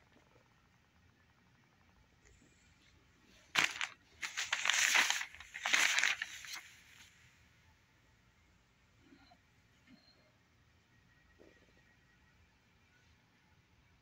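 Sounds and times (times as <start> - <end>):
newspaper pages rustling: 3.4 - 7.1.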